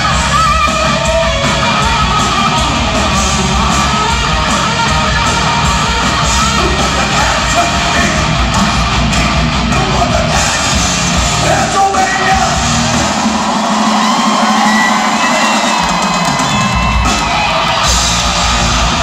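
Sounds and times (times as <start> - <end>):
electric guitar: 0.0 - 13.6
drums: 0.0 - 19.0
live metal band playing: 0.0 - 19.0.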